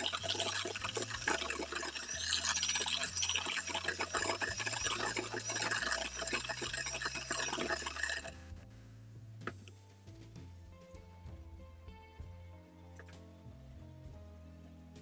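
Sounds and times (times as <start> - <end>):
electric hand mixer beating batter: 0.0 - 8.3.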